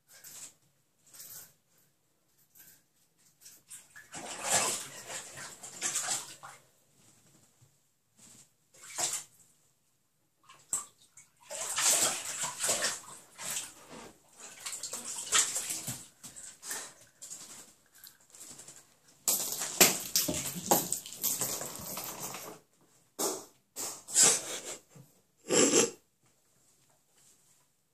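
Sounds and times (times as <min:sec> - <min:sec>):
animal splashing water in a bathtub: 0:02.6 - 0:06.7, 0:08.7 - 0:09.5, 0:10.4 - 0:23.5.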